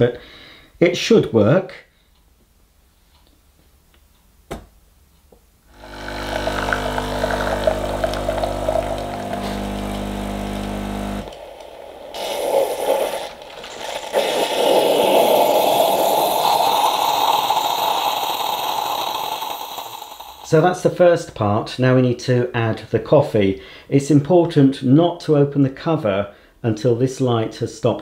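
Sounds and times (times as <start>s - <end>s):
water pump humming: 5.7s - 20.6s
hissing rush of milk streaming: 5.8s - 20.6s.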